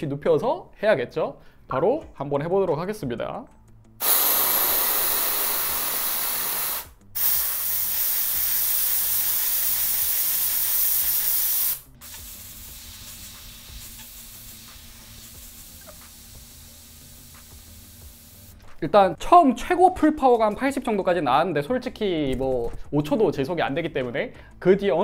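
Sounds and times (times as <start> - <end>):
air duster can hissing: 4.0 - 18.8.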